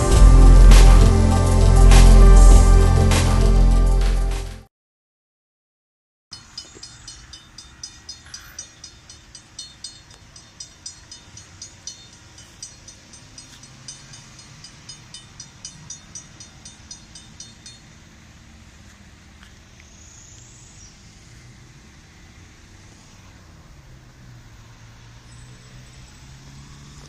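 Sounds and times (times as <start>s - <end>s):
railroad crossing bell ringing: 0.0s - 3.1s, 6.4s - 18.5s.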